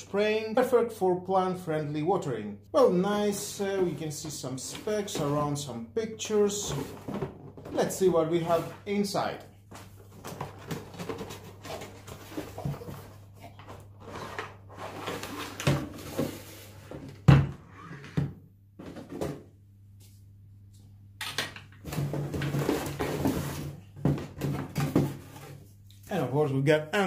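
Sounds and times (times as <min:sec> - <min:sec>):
plastic rustling and scraping: 0:09.7 - 0:17.2, 0:21.8 - 0:25.9.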